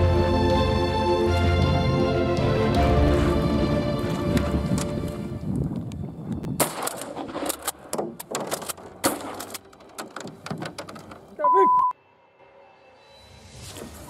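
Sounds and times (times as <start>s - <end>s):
background music: 0.0s - 14.0s
shotgun shots: 6.6s - 7.7s
clicks and knocks: 6.6s - 11.4s.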